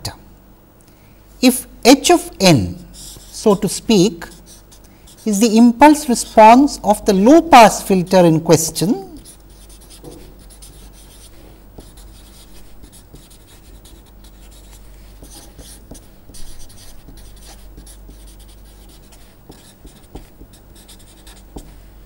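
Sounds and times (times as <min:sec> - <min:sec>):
steady low hum: 0:00.0 - 0:22.0
marker scratching on paper: 0:03.0 - 0:06.3, 0:09.0 - 0:21.9.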